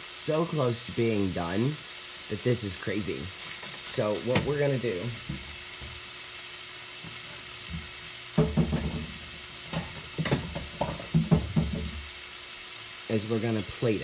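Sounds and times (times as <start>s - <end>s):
meat sizzling in a skillet: 0.0s - 14.0s
sharp knocks and clatters: 7.7s - 12.0s.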